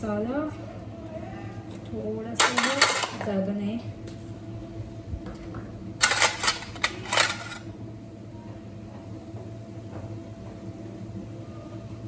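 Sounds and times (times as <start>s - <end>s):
steady low hum: 0.0s - 12.0s
plastic containers clattering: 2.4s - 3.2s, 6.0s - 7.6s.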